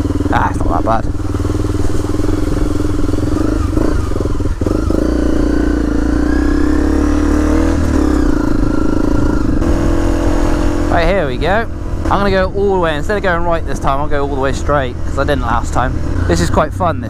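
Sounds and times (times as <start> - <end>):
motorcycle engine at low revs: 0.0 - 17.0.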